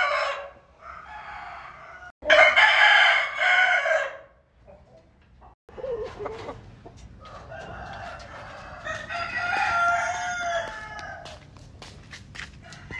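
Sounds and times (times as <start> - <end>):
rooster crowing: 0.0 - 4.3, 7.3 - 11.4.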